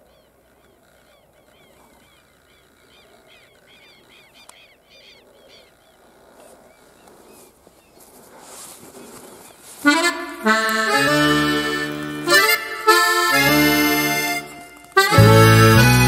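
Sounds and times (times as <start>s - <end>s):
faint outdoor background noise: 0.0s - 16.0s
accordion music: 9.8s - 16.0s.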